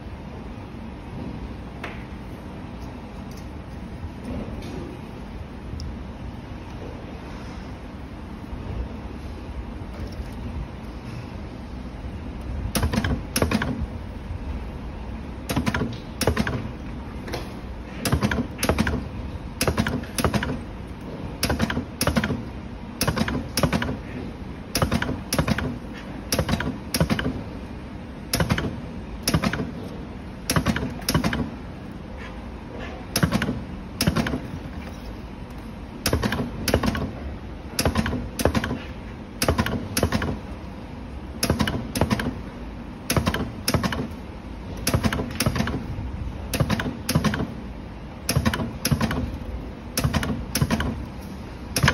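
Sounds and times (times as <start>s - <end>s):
steady machine hum: 0.0s - 51.9s
spot welder sharp clicks: 12.4s - 13.9s, 15.4s - 24.1s, 24.7s - 27.4s, 28.3s - 31.6s, 33.1s - 34.6s, 35.5s - 40.7s, 41.4s - 42.4s, 43.0s - 44.2s, 44.8s - 47.6s, 48.2s - 51.9s.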